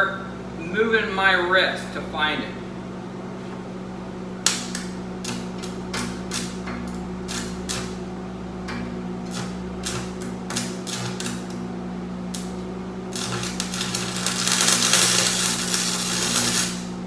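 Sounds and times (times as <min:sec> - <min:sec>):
steady hum: 0:00.0 - 0:17.0
welding arc crackling: 0:04.4 - 0:17.0.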